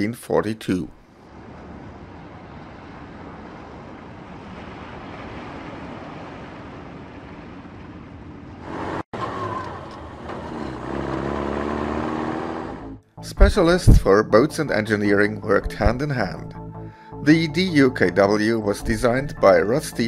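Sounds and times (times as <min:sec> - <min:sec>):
truck engine running: 0:08.7 - 0:13.5.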